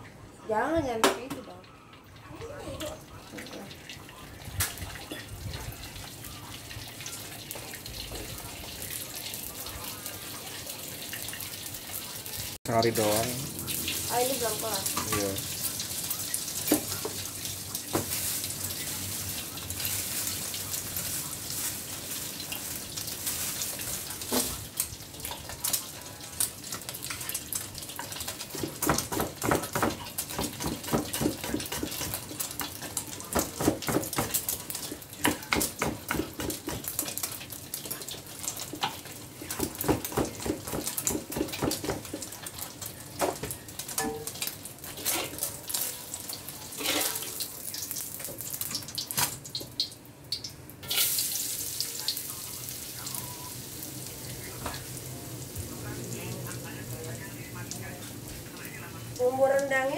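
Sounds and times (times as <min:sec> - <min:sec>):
egg frying hiss: 0:02.2 - 0:59.9
spatula scraping in wok: 0:44.9 - 0:45.8, 0:46.7 - 0:47.4.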